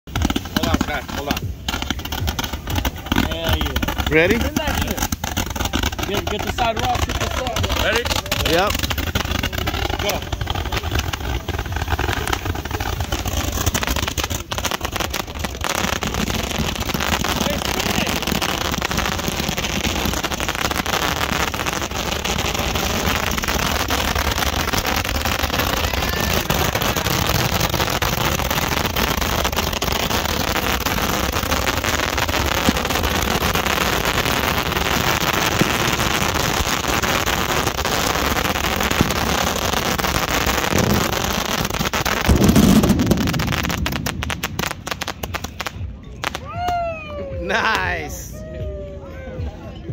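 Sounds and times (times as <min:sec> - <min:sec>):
roman candles crackling: 0:00.0 - 0:46.0
low firework burst: 0:00.1 - 0:49.9.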